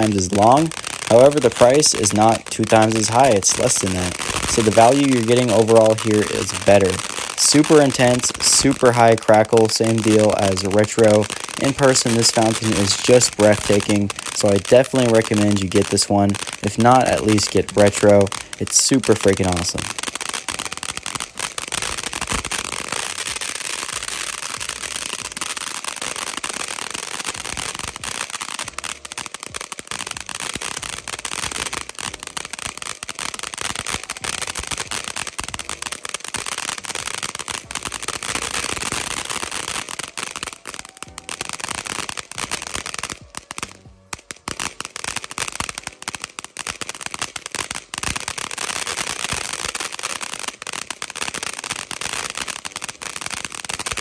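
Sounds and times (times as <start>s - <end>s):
firework rapid crackles: 0.0s - 54.0s
fountain firework hissing: 0.0s - 54.0s.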